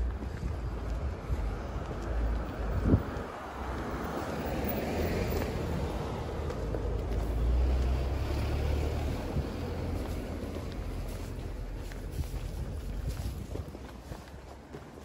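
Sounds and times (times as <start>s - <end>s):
street traffic hiss: 0.0s - 15.0s
wind buffeting microphone: 0.0s - 15.0s.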